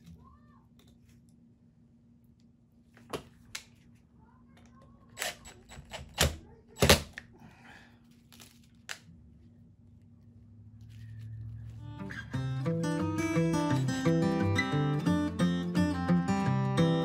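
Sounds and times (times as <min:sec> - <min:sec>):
metal parts clicking and knocking: 0:05.2 - 0:07.2.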